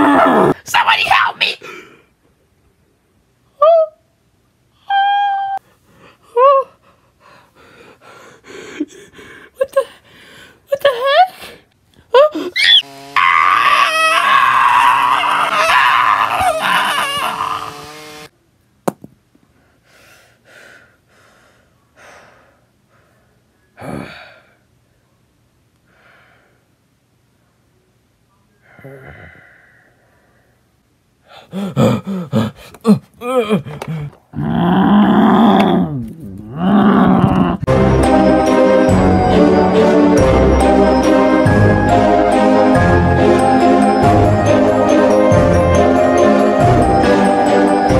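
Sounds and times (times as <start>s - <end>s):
person breathing: 1.6s - 2.2s, 5.6s - 10.7s, 19.5s - 24.7s, 25.9s - 26.7s, 28.6s - 34.3s
child yelping: 12.4s - 17.8s
child crying out: 12.5s - 17.9s.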